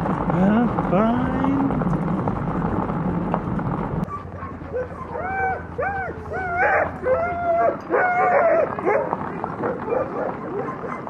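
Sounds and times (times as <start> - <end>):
cart rolling over snow: 0.0 - 11.0
huskies yelping and whining: 4.0 - 11.0.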